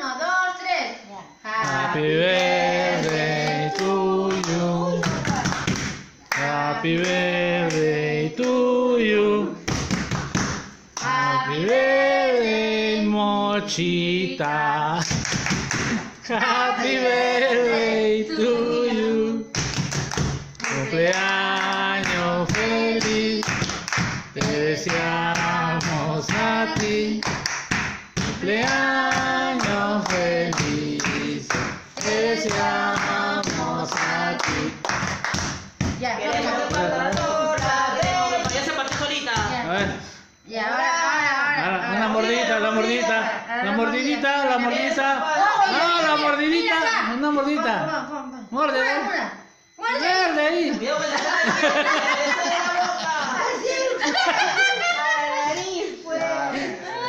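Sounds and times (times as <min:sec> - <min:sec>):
women singing together: 0:01.3 - 0:10.2, 0:11.0 - 0:15.3, 0:15.9 - 0:19.8, 0:20.6 - 0:46.2, 0:50.8 - 0:57.0
hand clapping: 0:03.8 - 0:06.5, 0:09.7 - 0:10.7, 0:15.0 - 0:16.0, 0:19.5 - 0:39.5.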